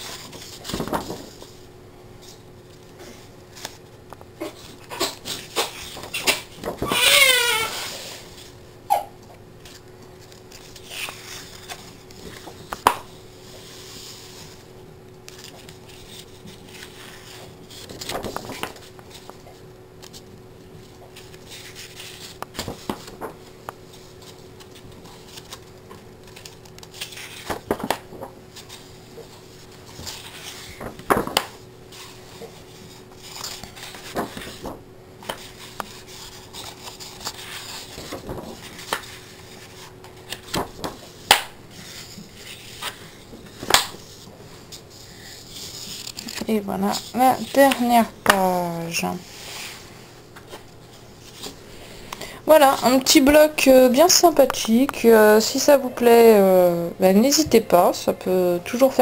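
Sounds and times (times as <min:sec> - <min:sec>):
paper pages turning: 0:00.0 - 0:01.6, 0:09.6 - 0:51.6
faint steady hum: 0:00.0 - 0:59.0.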